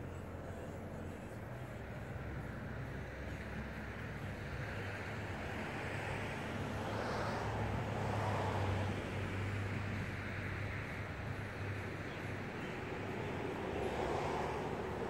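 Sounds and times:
vehicle engine idling: 0.0 - 6.8
passing car road noise: 0.0 - 15.0.

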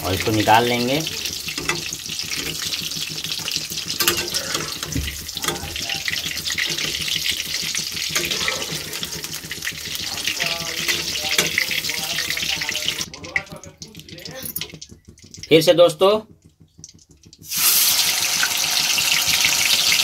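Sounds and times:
spatula scraping pan: 0.0 - 13.2
food sizzling in hot oil: 0.0 - 20.0.

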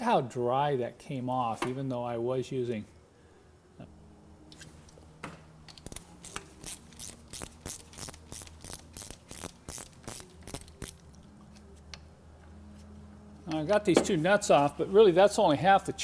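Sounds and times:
ratchet wrench clicking: 5.7 - 11.1.

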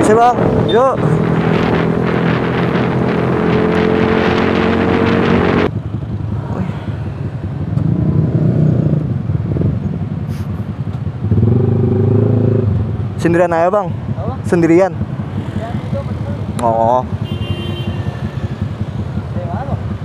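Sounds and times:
wind rushing over microphone: 0.0 - 17.2
motorcycle engine cruising: 0.0 - 20.0
motorcycle engines idling: 12.8 - 20.0.

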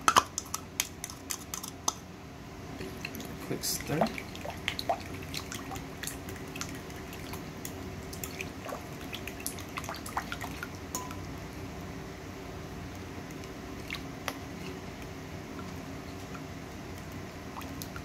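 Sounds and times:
utensil stirring liquid in bowl: 0.0 - 2.0, 2.8 - 11.2
steady low hum: 0.0 - 18.0.

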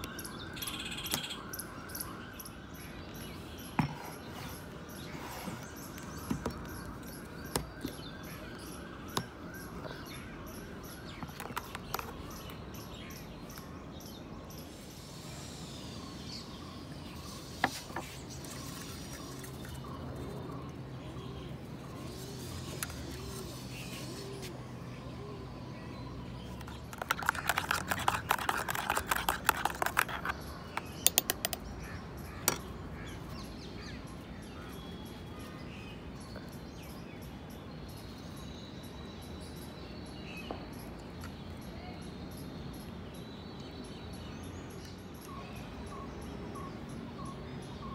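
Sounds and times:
birds chattering rapidly: 0.0 - 38.4
birds calling: 15.6 - 34.8
sharp clicks: 30.8 - 31.6.

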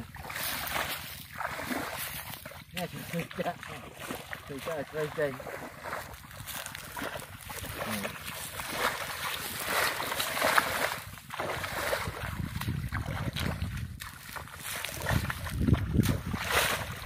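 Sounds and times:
muddy water sloshing and splashing: 0.0 - 17.0
wind buffeting microphone: 4.7 - 17.0.

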